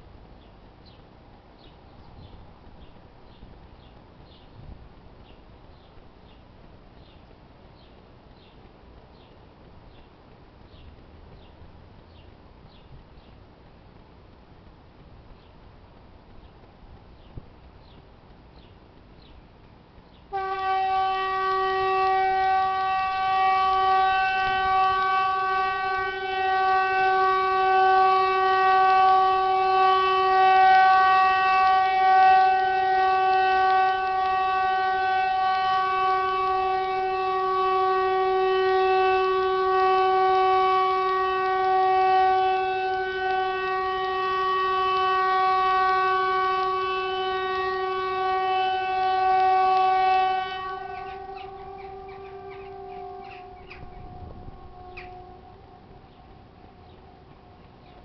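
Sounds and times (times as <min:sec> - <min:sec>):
steady trumpet-like tone: 0:20.3 - 0:58.0.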